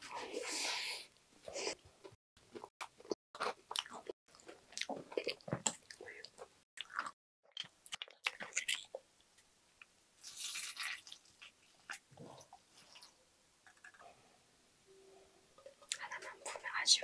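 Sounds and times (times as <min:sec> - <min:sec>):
wet chewing and crunching: 0:02.4 - 0:09.0, 0:10.2 - 0:14.0.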